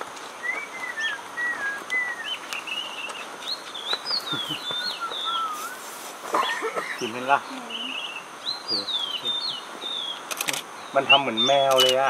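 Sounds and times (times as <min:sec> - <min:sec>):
bird whistling calls: 0:00.4 - 0:06.6.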